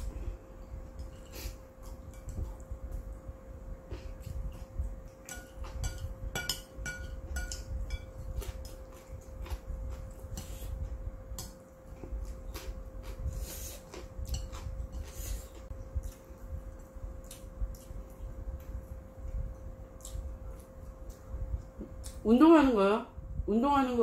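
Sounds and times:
chopsticks clinking on ceramic bowl: 0:05.3 - 0:08.8
chewing: 0:11.8 - 0:18.7.

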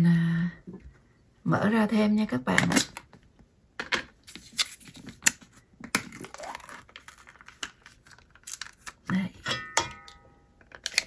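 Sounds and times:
plastic container crinkling: 0:06.0 - 0:09.1.

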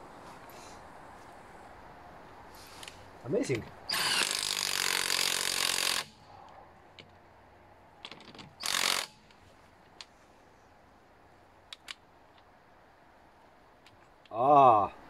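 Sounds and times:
small clicks: 0:11.7 - 0:12.5.

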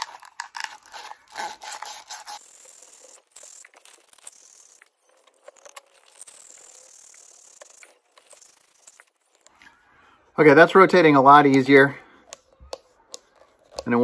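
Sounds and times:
sandpaper scraping pipe: 0:00.0 - 0:04.8.

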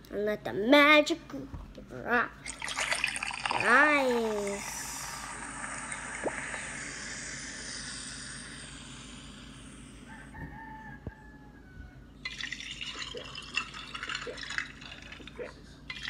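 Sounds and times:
bubbling dripping drink sounds: 0:02.4 - 0:10.0, 0:12.3 - 0:16.0.

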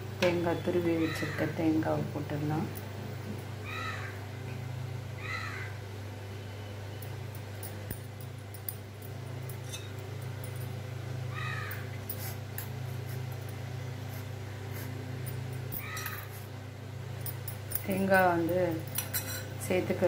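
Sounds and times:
steady low hum: 0:00.0 - 0:20.0
animal call: 0:03.6 - 0:04.2, 0:05.2 - 0:05.8, 0:11.3 - 0:11.9
spoon scraping steel bowls: 0:09.4 - 0:10.0, 0:18.8 - 0:19.6.

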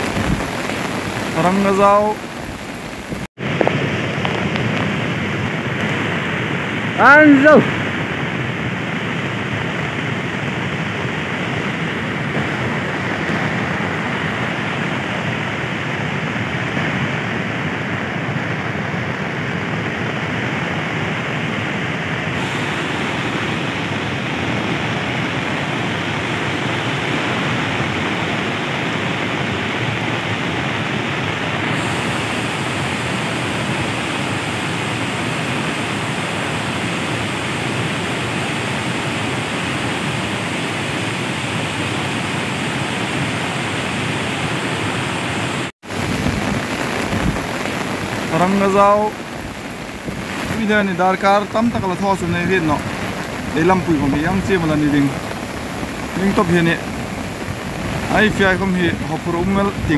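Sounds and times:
floodwater rushing: 0:00.0 - 0:59.9.

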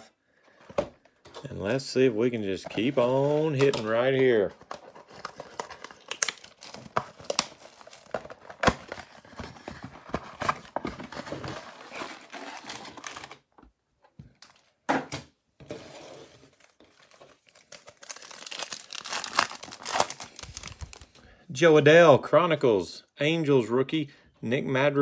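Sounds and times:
wrapper crinkling: 0:16.5 - 0:21.2.

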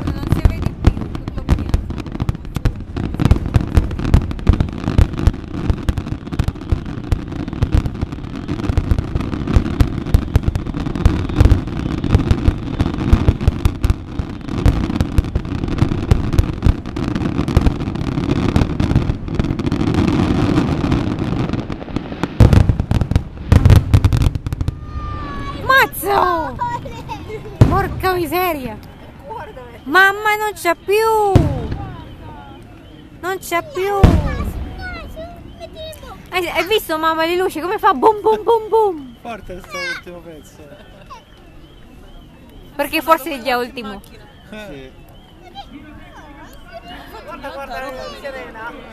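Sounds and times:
heavy fireworks booms: 0:00.0 - 0:42.2
fireworks bursting: 0:00.0 - 0:48.9.

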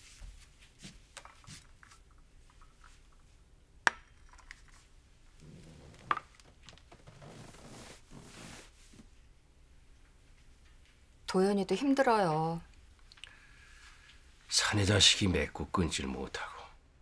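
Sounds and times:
clothing rustling: 0:00.0 - 0:03.4, 0:04.7 - 0:09.3.

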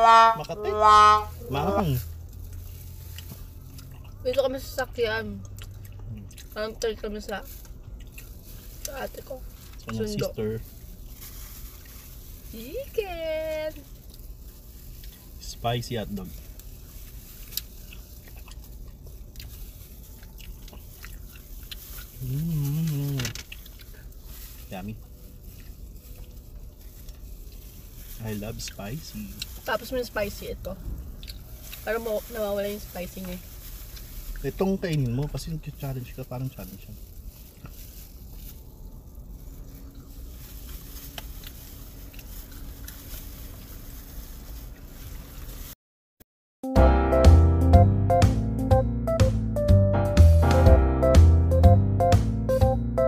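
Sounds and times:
low steady hum: 0:00.0 - 0:45.6
low rumble in car cabin: 0:00.0 - 0:45.7
people chewing food: 0:01.8 - 0:04.3, 0:05.4 - 0:06.6, 0:07.5 - 0:09.0, 0:16.6 - 0:29.6, 0:30.8 - 0:31.8, 0:39.7 - 0:43.7.

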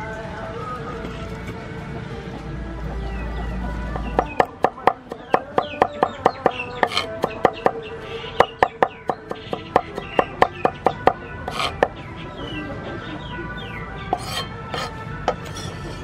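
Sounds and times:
background music: 0:00.0 - 0:16.0
cleaver chopping on wooden board: 0:04.1 - 0:12.0, 0:14.2 - 0:15.6.

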